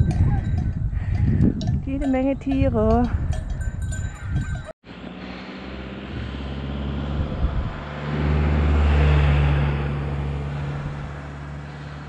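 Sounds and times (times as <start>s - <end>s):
van engine passing: 4.9s - 12.0s.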